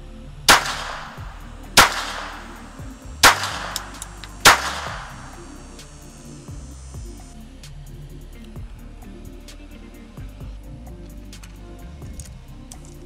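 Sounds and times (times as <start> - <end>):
faint background music: 0.0 - 13.0
pistol shots with echo: 0.5 - 5.4.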